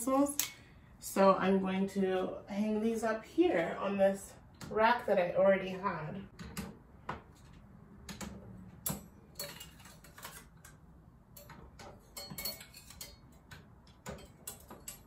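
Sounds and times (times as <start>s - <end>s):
metal utensils clinking on rack: 8.9s - 10.5s, 11.4s - 15.0s.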